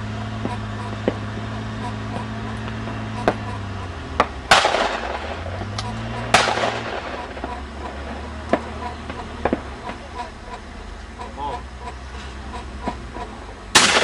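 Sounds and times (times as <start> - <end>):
faint sharp cracks: 4.2 - 10.2, 13.8 - 14.0
shotgun shots echoing: 4.3 - 5.6, 6.2 - 7.6, 13.7 - 14.0.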